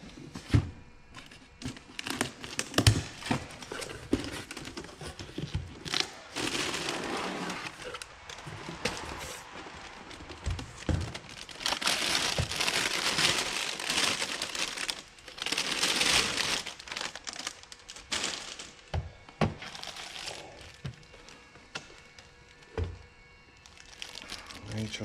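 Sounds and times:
plastic bag crinkling: 3.6s - 18.9s, 19.6s - 21.4s, 23.6s - 25.0s.

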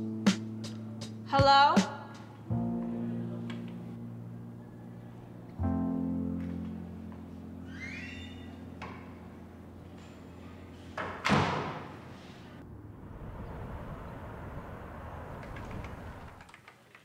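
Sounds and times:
piano music: 0.0s - 1.4s, 2.4s - 9.8s.

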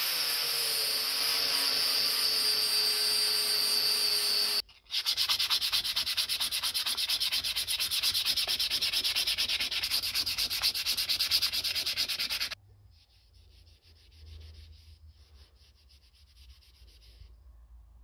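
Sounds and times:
sandpaper rasping on wood: 4.9s - 12.6s, 13.2s - 17.3s.

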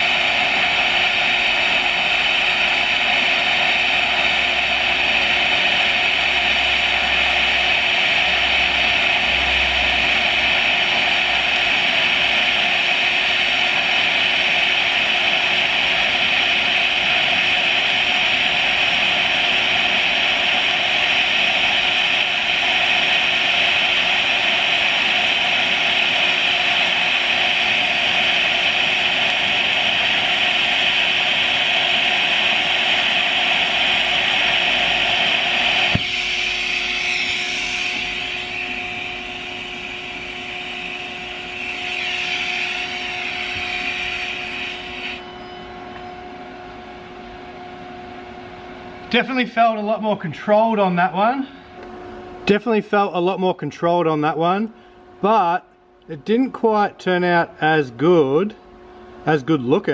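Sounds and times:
welding arc hissing: 0.0s - 45.2s
welder humming: 0.0s - 59.9s.

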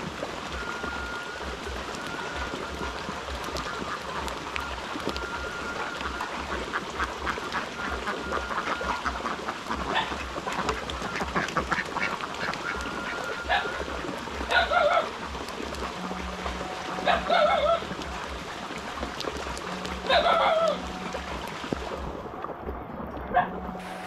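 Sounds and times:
steady rain: 0.0s - 24.0s
water dripping: 0.0s - 24.0s
ducks quacking: 5.6s - 15.1s, 15.9s - 17.9s, 19.7s - 21.1s.

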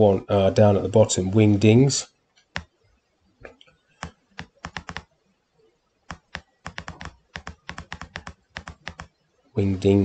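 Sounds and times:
sharp computer clicks: 4.0s - 5.1s, 6.1s - 9.2s.

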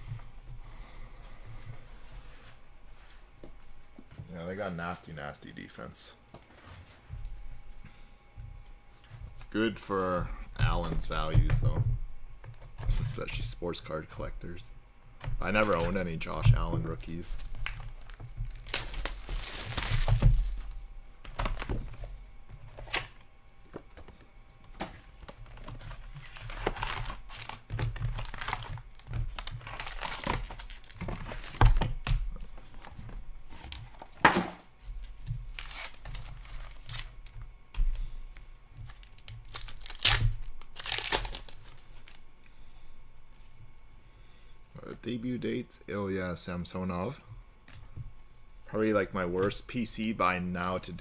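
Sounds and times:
plastic wrappers crinkling and tearing: 15.4s - 20.7s, 25.2s - 34.1s, 35.0s - 42.2s.

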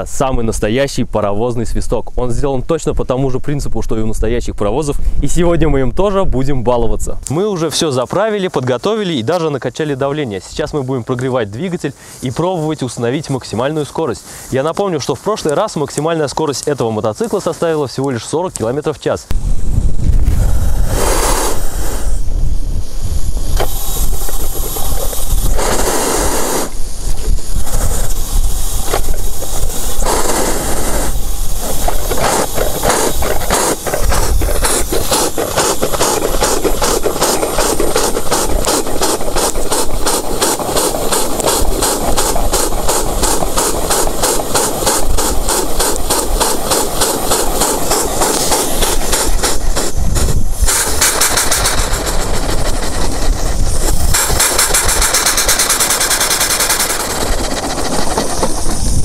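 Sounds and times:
steam venting rush: 3.3s - 59.0s
steam hissing: 7.1s - 59.0s
steam engine chuffing: 20.4s - 59.0s.

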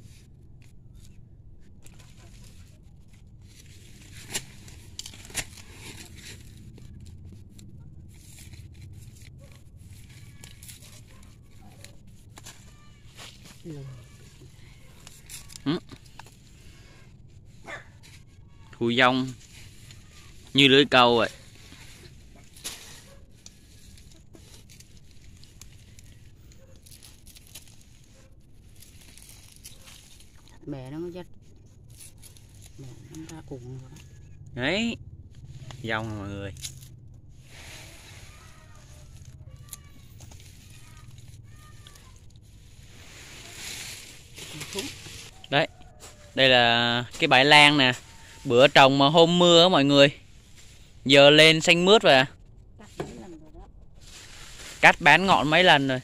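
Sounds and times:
hands crumbling soil and tearing roots: 0.1s - 52.2s.

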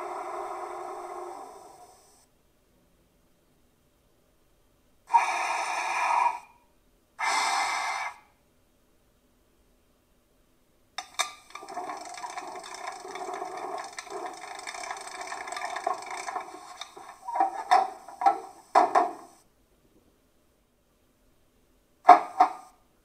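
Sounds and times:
rapid mechanical clicks and clatter: 11.0s - 18.6s.

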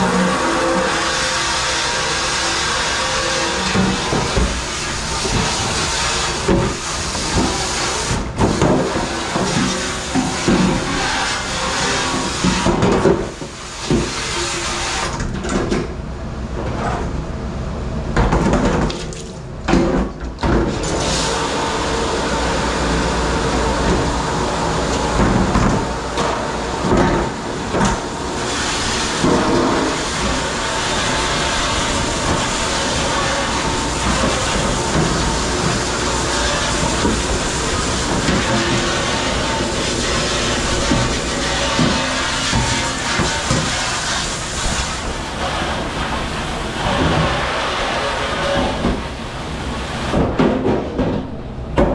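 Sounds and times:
water rushing: 0.0s - 12.6s, 20.8s - 50.1s
rush of spray: 27.5s - 48.2s.

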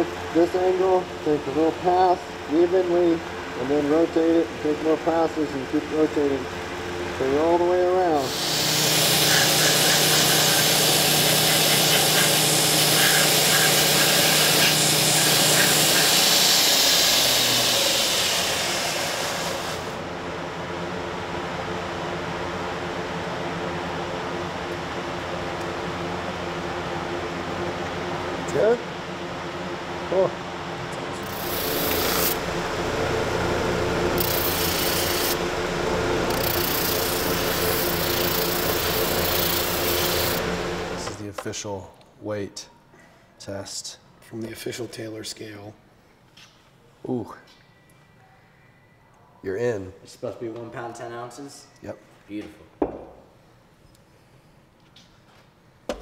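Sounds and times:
belt grinder hum: 7.4s - 20.0s, 31.2s - 41.2s
abrasive belt sanding wood: 8.2s - 20.0s, 31.2s - 41.2s.

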